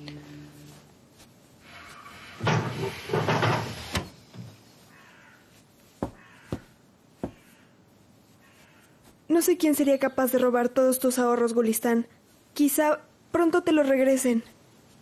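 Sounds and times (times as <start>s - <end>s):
crow cawing: 4.9s - 5.5s, 6.1s - 7.8s, 8.4s - 9.0s.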